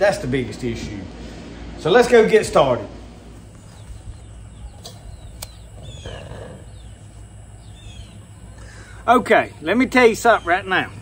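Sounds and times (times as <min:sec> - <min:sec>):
birds chirping: 0:00.0 - 0:11.0
steady low hum: 0:00.0 - 0:11.0
sharp clicks: 0:04.8 - 0:05.7.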